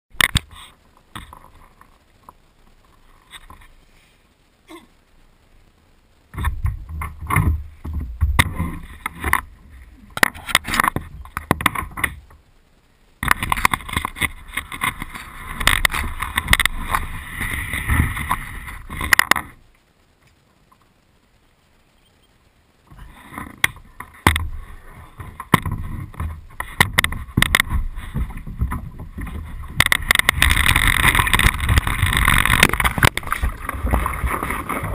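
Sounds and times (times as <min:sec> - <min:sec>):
rumbling handling noise: 0:06.3 - 0:12.5, 0:13.2 - 0:19.8, 0:22.8 - 0:34.9.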